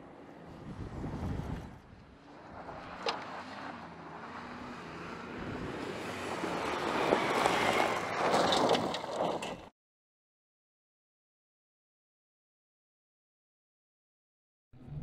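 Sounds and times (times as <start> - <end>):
suv engine driving fast: 0.0 - 9.4
gravel crackling: 0.1 - 9.7.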